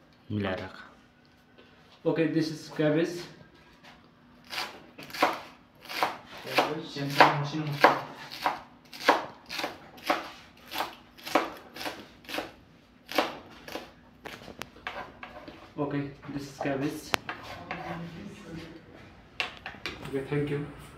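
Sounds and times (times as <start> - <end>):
knife chopping cabbage on board: 4.5 - 15.5.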